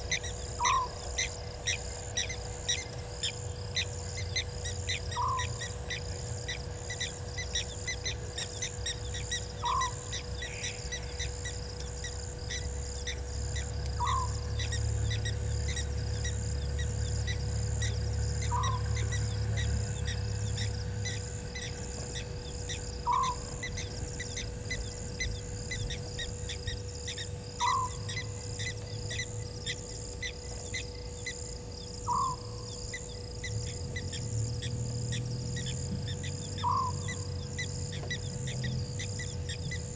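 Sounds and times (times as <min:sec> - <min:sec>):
faint constant hum: 0:00.0 - 0:39.9
night bird call: 0:00.0 - 0:39.9
night insects chirping: 0:00.0 - 0:39.9.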